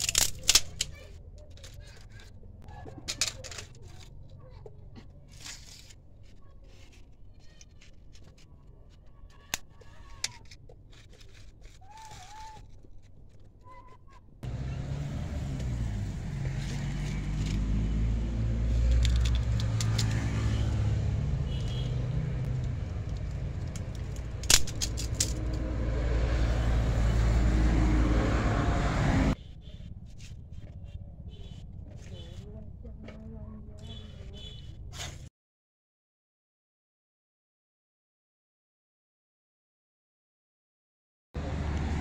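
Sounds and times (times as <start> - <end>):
vehicle engine running: 14.4 - 29.4.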